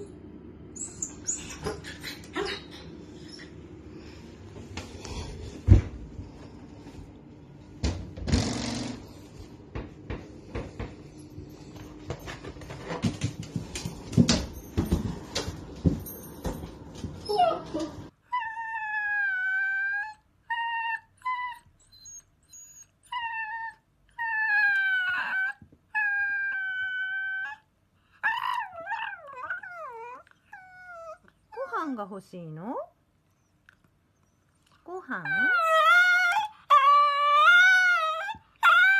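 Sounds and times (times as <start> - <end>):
dog whining: 0.7 - 3.6, 17.2 - 31.8, 33.3 - 38.9
knocks and thumps: 7.8 - 11.2.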